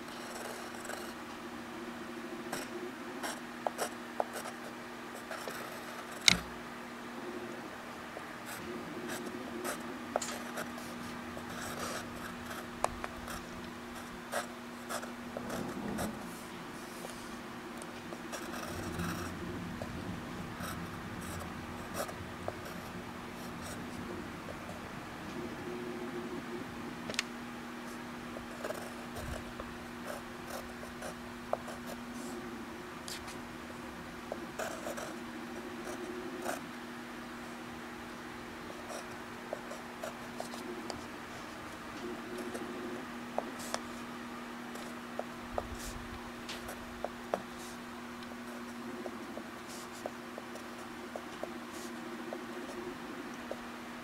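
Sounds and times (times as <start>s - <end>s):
steady low hum: 0.0s - 54.0s
pencil scratching on paper: 0.1s - 1.2s, 34.6s - 35.2s, 43.4s - 44.1s, 48.4s - 53.6s.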